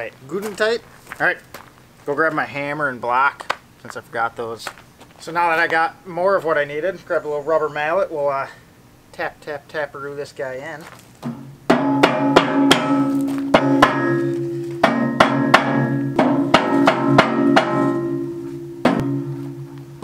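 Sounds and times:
mallet striking steel: 11.2s - 20.0s
steel bucket ringing: 11.8s - 20.0s.

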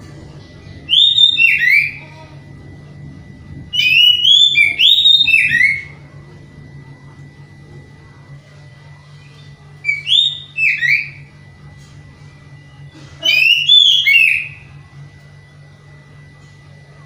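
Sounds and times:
steady low hum: 0.0s - 17.0s
thin high tone: 0.5s - 14.8s
bird whistling song: 0.9s - 2.0s, 3.7s - 6.0s, 9.8s - 11.3s, 13.3s - 14.6s.

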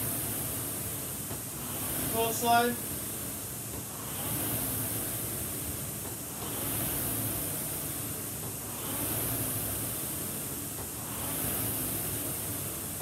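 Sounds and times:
rowing machine fan whooshing: 0.0s - 13.0s.

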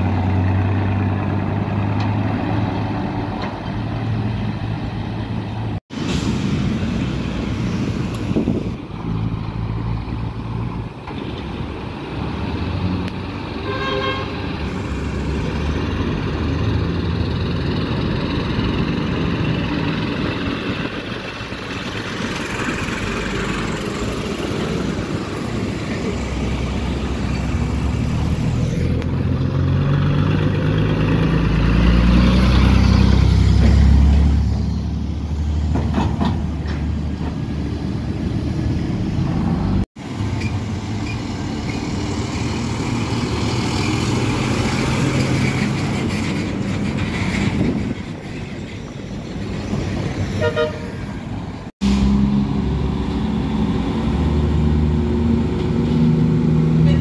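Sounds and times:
deep truck engine rumble: 0.0s - 13.6s, 14.3s - 57.0s
diesel trucks passing: 0.0s - 57.0s
tyre and traffic noise: 0.0s - 57.0s
short horn toot: 50.4s - 51.0s.

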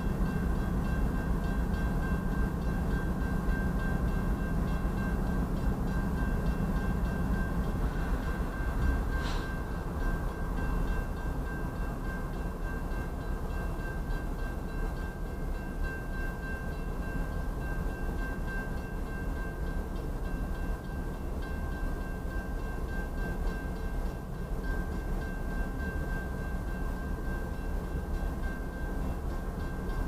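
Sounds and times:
crossing warning bell ringing: 0.0s - 30.0s
brief hiss: 9.2s - 9.5s.

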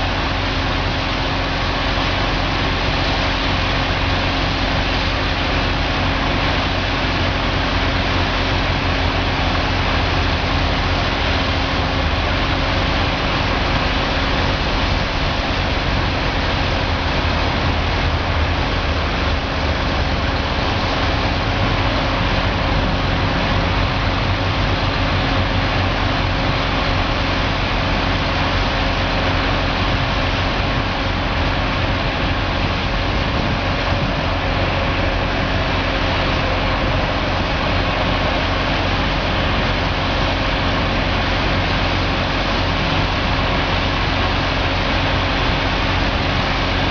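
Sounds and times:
pressure washer engine humming: 0.0s - 46.9s.

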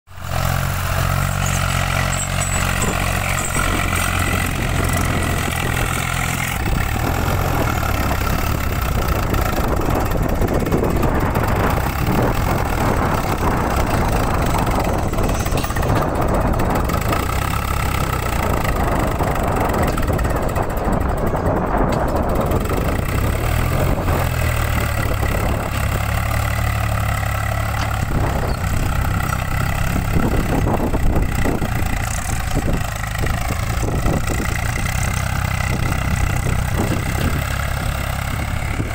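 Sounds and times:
tractor diesel engine: 0.1s - 38.9s.

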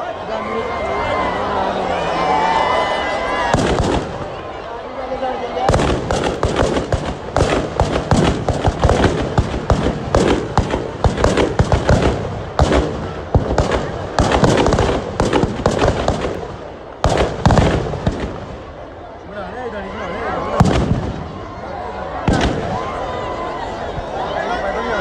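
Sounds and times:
firecrackers cracking and banging: 3.5s - 4.4s, 5.7s - 18.9s, 20.6s - 21.5s, 22.2s - 23.0s.

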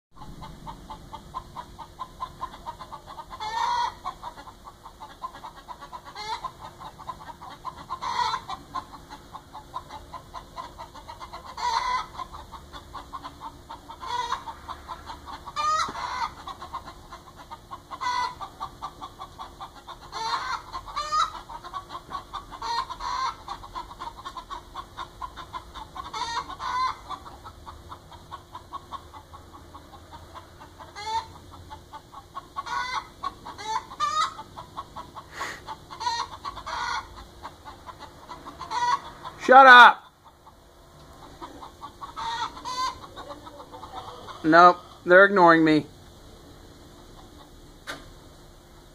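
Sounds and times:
hen squawking: 0.2s - 27.4s, 32.6s - 40.4s, 41.2s - 45.2s
hens clucking: 0.2s - 48.9s.

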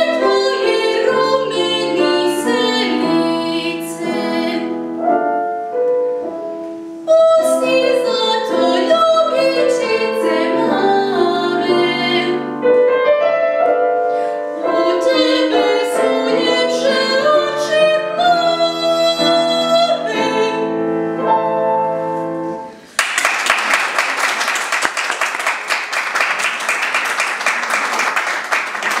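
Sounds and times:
woman singing classical song: 0.0s - 5.0s, 7.0s - 12.7s, 14.2s - 21.0s
piano accompaniment: 0.0s - 29.0s
audience applause: 23.0s - 29.0s.

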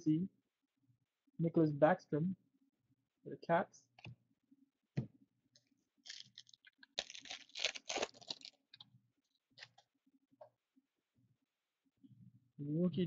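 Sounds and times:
foil packs crinkling and rustling: 6.0s - 8.8s.

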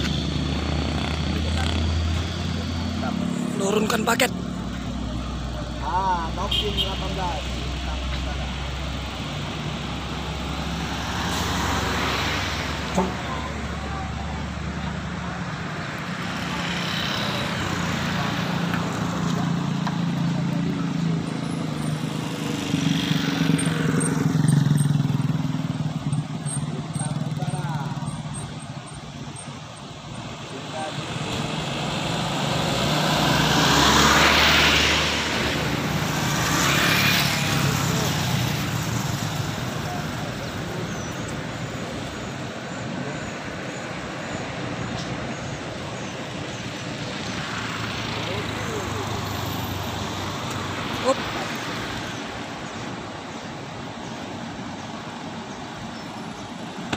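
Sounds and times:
bus diesel engine rumble: 0.0s - 11.0s
motorcycle passing: 0.0s - 14.4s, 16.0s - 29.1s, 30.8s - 42.2s
passing road traffic: 0.0s - 56.9s.

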